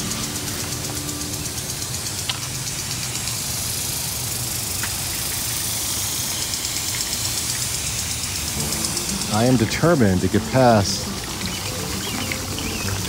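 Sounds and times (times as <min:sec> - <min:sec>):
sprinkler spray hissing: 0:00.0 - 0:13.0.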